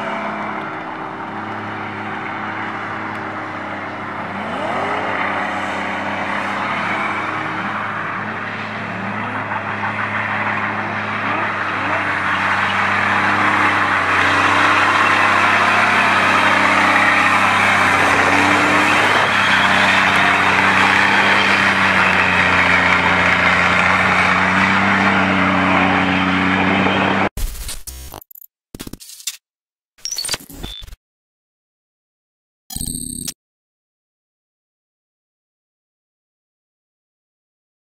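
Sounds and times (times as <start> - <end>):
truck diesel engine at high revs: 0.0 - 27.3
tyres spinning on asphalt: 0.0 - 27.3.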